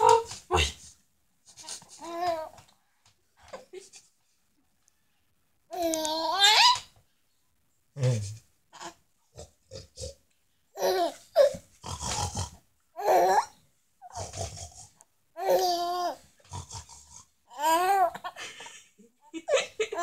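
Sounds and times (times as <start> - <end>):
baby laughing and squealing: 5.8 - 6.9.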